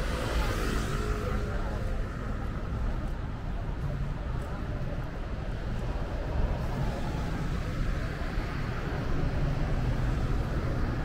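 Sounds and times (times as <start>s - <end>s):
city traffic rumble: 0.0s - 11.0s.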